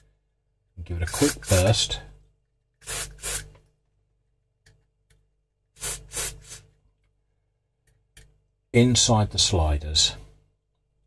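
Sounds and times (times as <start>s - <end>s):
aerosol spray hissing bursts: 2.8s - 3.5s, 5.8s - 6.6s.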